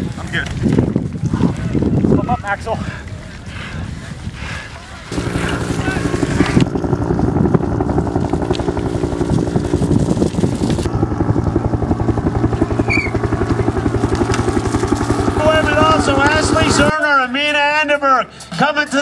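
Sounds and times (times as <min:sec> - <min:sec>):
motor running with fast pulse: 0:05.1 - 0:16.9.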